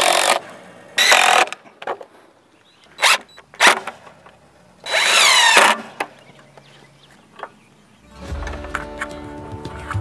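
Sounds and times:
cordless drill into wood: 0:00.0 - 0:00.4, 0:01.0 - 0:01.6, 0:03.0 - 0:04.0, 0:04.8 - 0:06.1.

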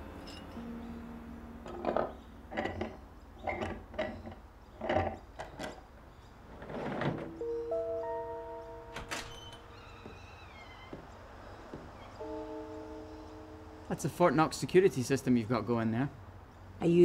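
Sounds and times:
door locks clicking and clunking: 0:08.8 - 0:11.1.

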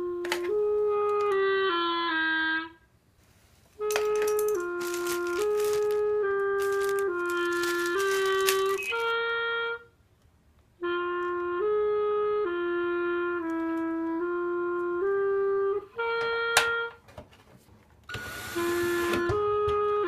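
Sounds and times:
slow melody of held notes: 0:03.8 - 0:09.9, 0:10.8 - 0:17.0.

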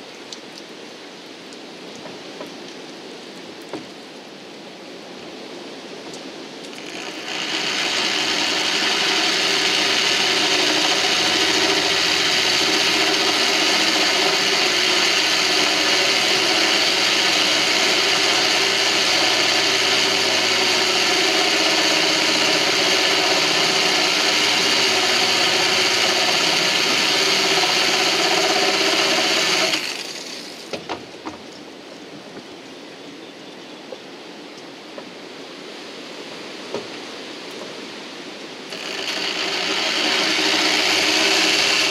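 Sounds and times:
drill drilling through glass: 0:06.7 - 0:30.6, 0:38.7 - 0:41.9.

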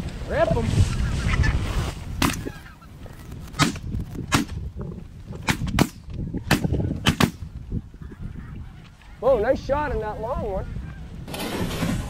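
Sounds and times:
shotgun blasts: 0:05.4 - 0:07.4.

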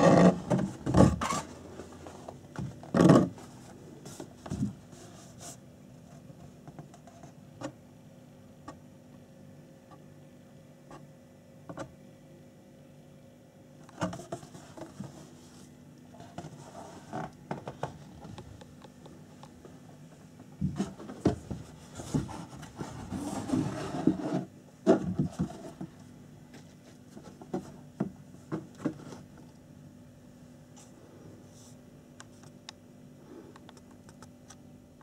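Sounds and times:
cardboard box rubbing and scraping: 0:00.0 - 0:05.6, 0:20.6 - 0:25.8.

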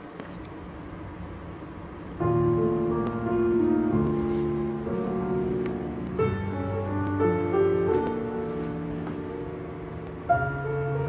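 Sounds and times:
instrumental music over loudspeakers: 0:02.3 - 0:11.0.

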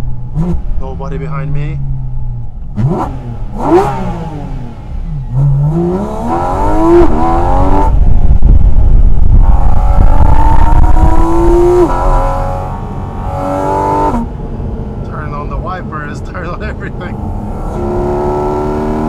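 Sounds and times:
car engine accelerating hard: 0:00.0 - 0:19.0.

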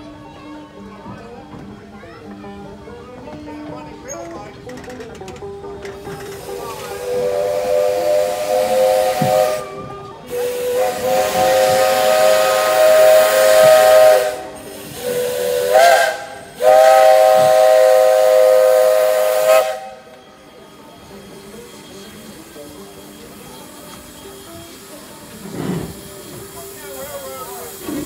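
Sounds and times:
steam hissing: 0:05.9 - 0:28.0
steam locomotive chime whistle: 0:06.2 - 0:28.0.

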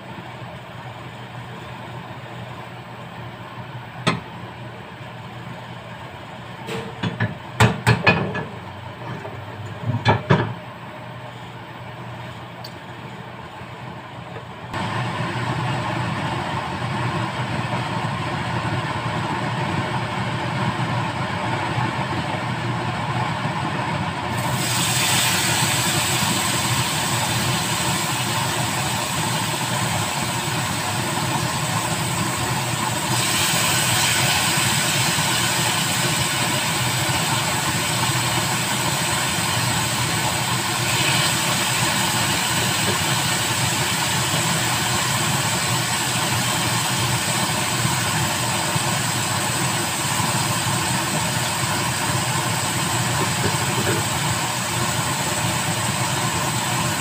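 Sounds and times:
chicken sizzling in grill pan: 0:24.3 - 0:57.0.

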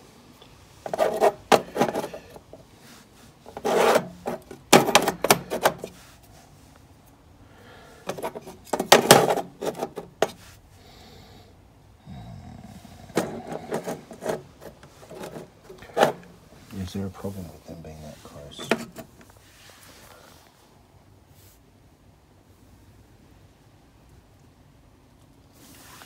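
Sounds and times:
scraping and rubbing: 0:00.8 - 0:06.8, 0:08.0 - 0:10.6, 0:12.6 - 0:20.1.

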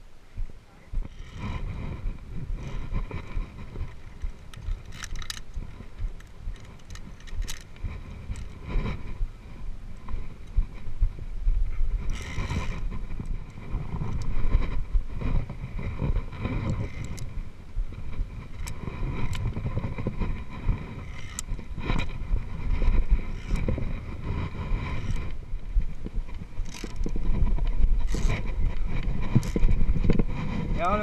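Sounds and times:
wind rumbling on microphone: 0:00.0 - 0:31.0
carabiners clicking on steel cable: 0:01.0 - 0:10.8, 0:12.0 - 0:17.4, 0:18.0 - 0:25.4, 0:26.3 - 0:31.0.

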